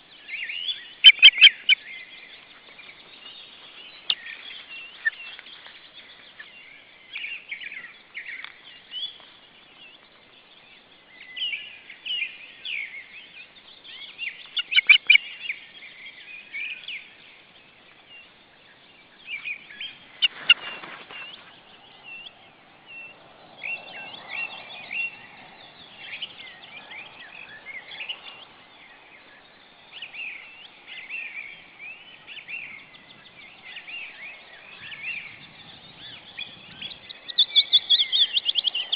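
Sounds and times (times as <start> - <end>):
osprey high chirps: 0.8 - 1.9, 14.0 - 15.3
rustling: 20.2 - 21.8.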